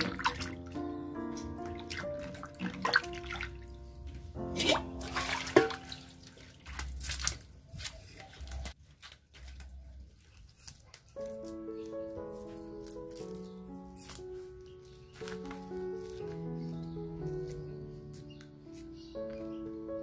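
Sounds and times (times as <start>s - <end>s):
water splashing on concrete floor: 0.0s - 0.8s, 1.4s - 9.7s
background music: 0.0s - 7.6s, 11.2s - 20.0s
water splashing in basin: 0.0s - 8.7s.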